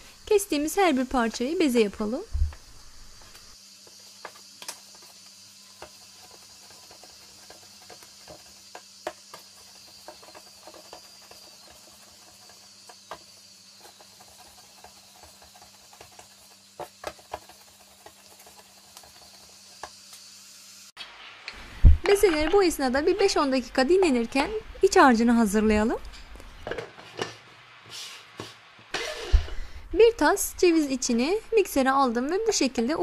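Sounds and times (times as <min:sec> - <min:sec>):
faint steady hiss: 0:00.0 - 0:33.0
dough patting and tapping: 0:03.2 - 0:20.0.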